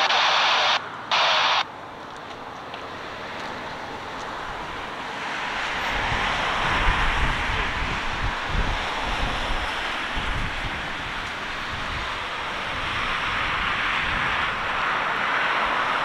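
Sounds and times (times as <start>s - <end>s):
distant jet engines rushing: 0.0s - 16.0s
wind rumbling on microphone: 0.0s - 16.0s.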